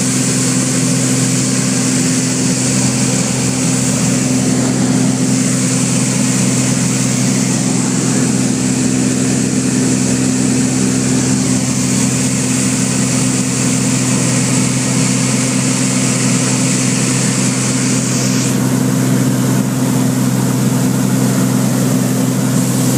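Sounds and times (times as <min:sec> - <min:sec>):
light aircraft engine and propeller: 0:00.0 - 0:22.9.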